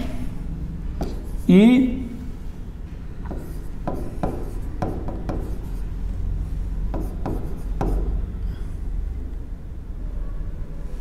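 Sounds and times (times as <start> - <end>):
steady low hum: 0.0 - 11.0
pen tapping on screen: 1.0 - 1.3, 3.2 - 5.6.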